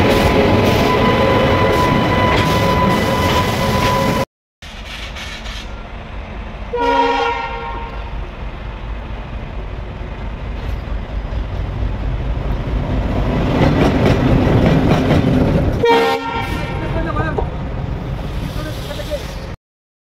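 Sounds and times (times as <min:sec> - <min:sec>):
diesel locomotive rumbling: 0:00.0 - 0:19.6
train horn: 0:06.7 - 0:08.1, 0:15.8 - 0:16.9.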